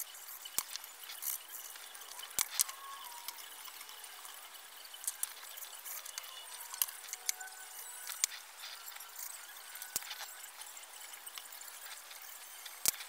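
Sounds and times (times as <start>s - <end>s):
metal clock parts clicking: 0.5s - 10.7s.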